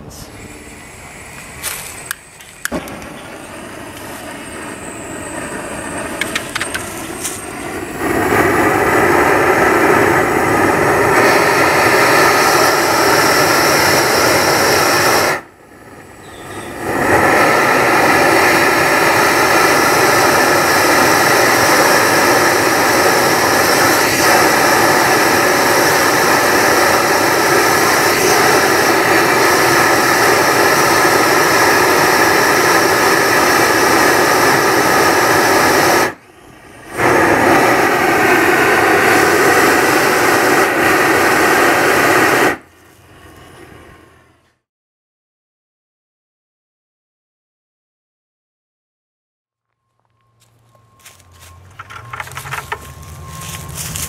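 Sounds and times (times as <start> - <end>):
blowtorch flame roaring: 0.1 - 44.4
sharp clicks: 6.2 - 6.9.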